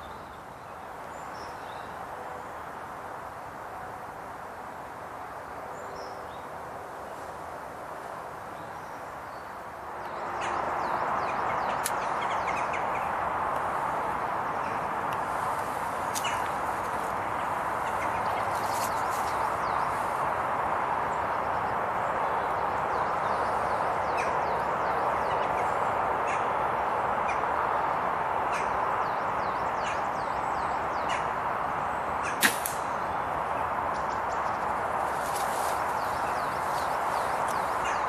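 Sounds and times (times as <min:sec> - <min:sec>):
background hiss: 0:00.0 - 0:38.0
small birds chirping: 0:08.4 - 0:20.3, 0:27.2 - 0:38.0
air rifle shot: 0:32.3 - 0:33.0.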